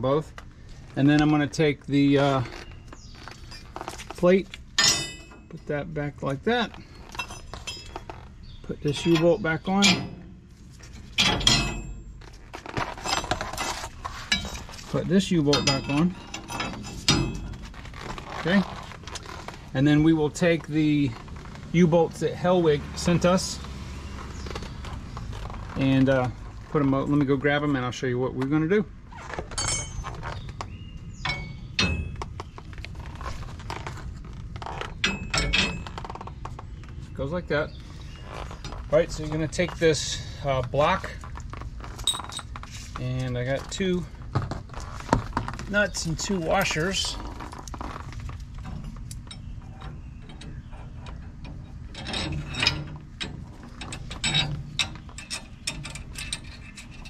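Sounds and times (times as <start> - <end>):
metal bolts clinking and knocking: 3.0 - 5.7, 7.0 - 19.4, 29.5 - 36.8, 41.5 - 43.8, 44.4 - 57.0
metal clicks of nuts and washers: 4.8 - 5.5, 35.0 - 36.2, 46.6 - 57.0.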